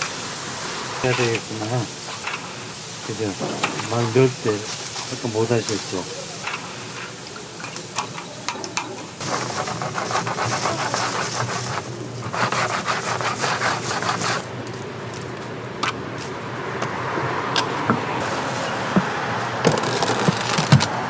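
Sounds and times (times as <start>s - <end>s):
mesh strainer scraping rolling balls: 9.2s - 14.5s, 19.5s - 21.0s.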